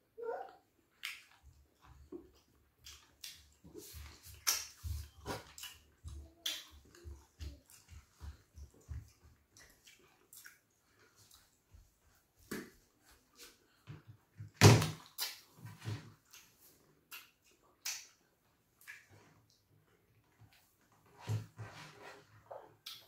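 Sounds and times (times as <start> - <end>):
wet chewing: 1.0 - 11.5
lip smacks: 15.0 - 15.5.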